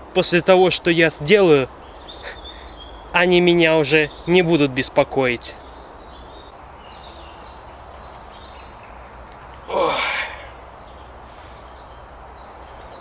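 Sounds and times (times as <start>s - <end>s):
faint outdoor background: 0.0s - 13.0s
short falling cry: 9.7s - 10.5s.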